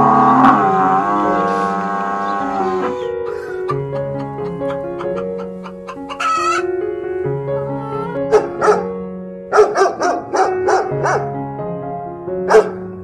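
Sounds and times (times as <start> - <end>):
background music: 0.0 - 13.0
hen squawk: 1.4 - 6.7
dog yipping and barking: 7.9 - 8.9, 9.5 - 11.2, 12.5 - 12.8.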